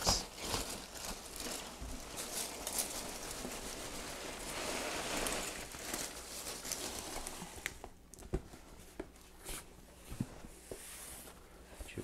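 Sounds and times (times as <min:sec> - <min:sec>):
packing peanuts and cardboard rustling: 0:00.0 - 0:08.0.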